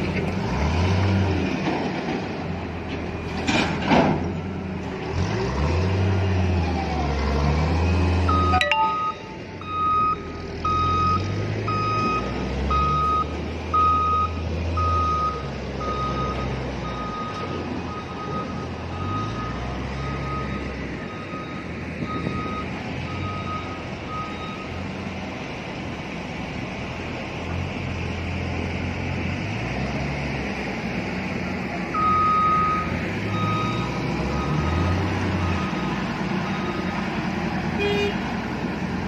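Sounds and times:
diesel engine rumble: 0.0 - 39.0
reversing alarm beeping: 8.3 - 24.8.

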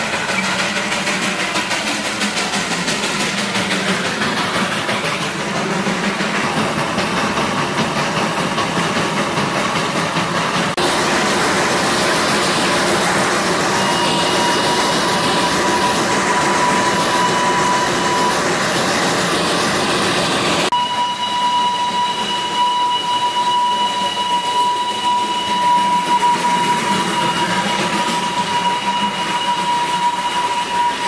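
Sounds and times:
steam hissing: 0.0 - 31.0
train rattling: 0.0 - 31.0
high-pitched ringing tone: 20.7 - 31.0.

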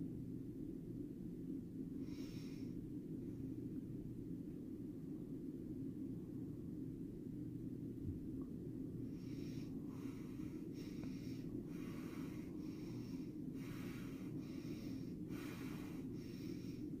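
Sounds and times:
woman breathing fast and rasping: 9.0 - 17.0.

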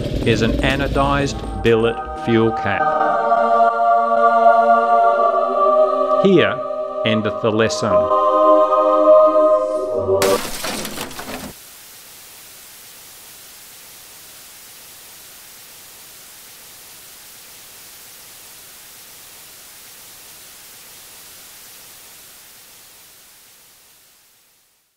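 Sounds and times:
tv static hiss: 10.2 - 24.9.

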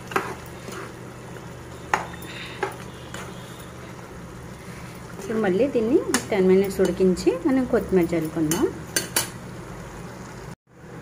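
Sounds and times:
spatula stirring thick curry: 0.0 - 5.3
faint sizzle: 0.0 - 11.0.

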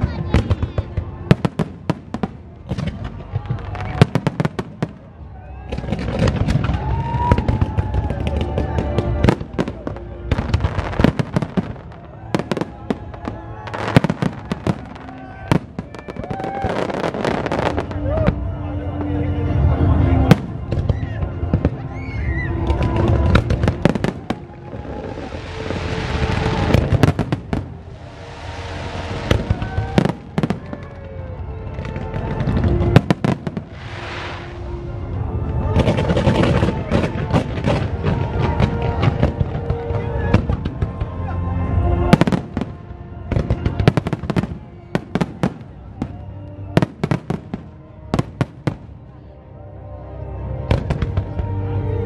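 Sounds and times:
fireworks crackling bangs: 0.0 - 18.1, 22.6 - 31.0, 31.7 - 41.2
fireworks bangs: 22.6 - 31.0, 31.8 - 41.1.

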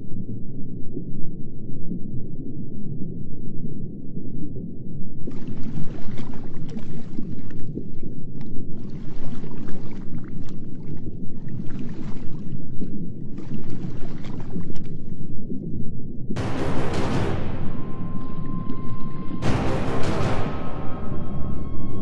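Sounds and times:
underwater rush of water: 5.2 - 15.4.

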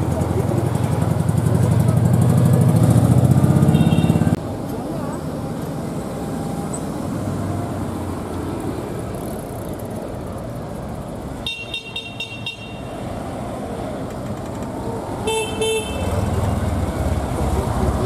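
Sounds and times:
cars passing slowly: 0.0 - 18.0
car horns tooting: 3.6 - 4.4, 11.4 - 13.0, 15.2 - 16.4.

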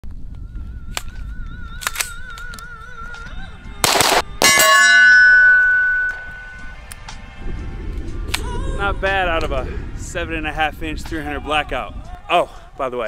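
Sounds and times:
gunshot: 3.8 - 4.3
steel target clanging and ringing: 4.4 - 6.7.

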